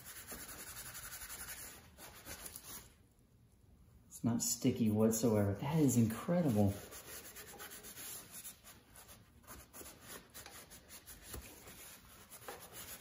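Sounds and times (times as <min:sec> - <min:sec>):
paper towel scrubbing plastic: 0:00.0 - 0:03.0, 0:06.1 - 0:13.0.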